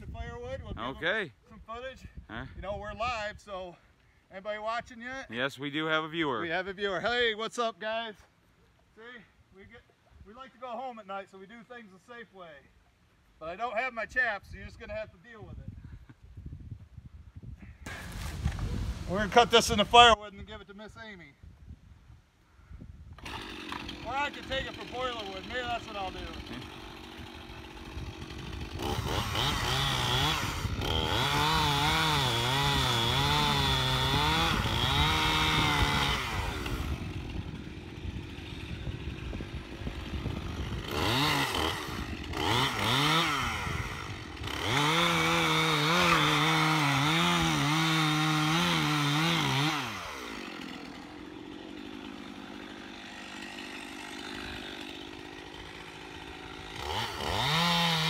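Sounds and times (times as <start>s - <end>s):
chainsaw cutting wood: 17.9s - 20.1s, 23.2s - 58.0s.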